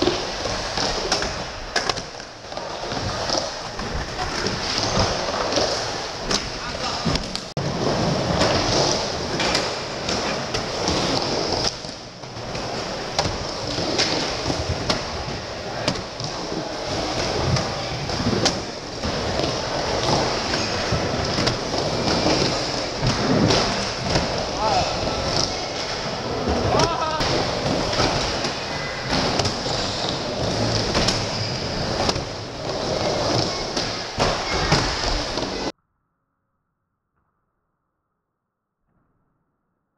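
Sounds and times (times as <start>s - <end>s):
skateboard wheels rolling on ramp: 0.0s - 35.7s.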